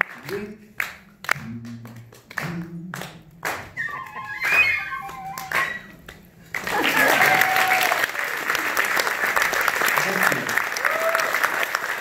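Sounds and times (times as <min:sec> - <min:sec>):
applause: 0:00.0 - 0:03.6, 0:04.4 - 0:12.0
high tones on small wind instrument: 0:03.8 - 0:06.0.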